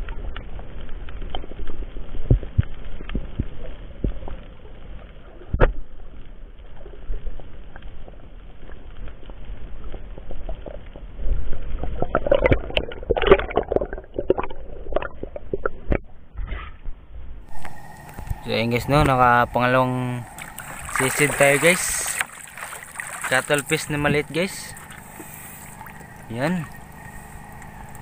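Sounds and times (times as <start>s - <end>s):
muffled underwater rumble: 0.0s - 28.0s
underwater clicks and knocks: 11.8s - 16.7s
splashing: 17.5s - 28.0s.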